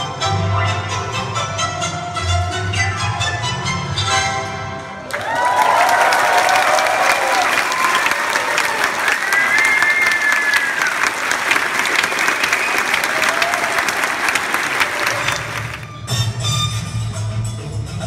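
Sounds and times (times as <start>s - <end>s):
large audience applauding: 5.0s - 15.9s.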